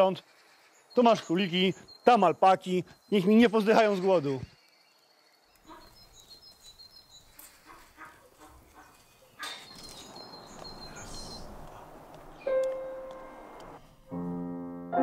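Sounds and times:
small birds chirping: 0:00.0 - 0:14.1
outdoor background noise: 0:00.0 - 0:14.4
light footsteps: 0:05.6 - 0:14.1.

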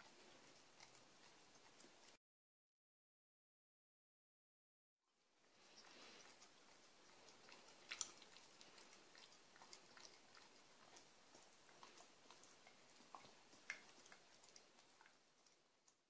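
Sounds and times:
dog licking a metal spoon: 0:00.0 - 0:02.2, 0:05.6 - 0:16.0.

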